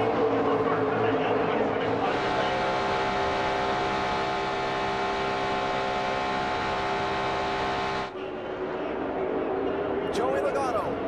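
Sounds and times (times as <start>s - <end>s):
race car engine droning: 0.0s - 8.2s.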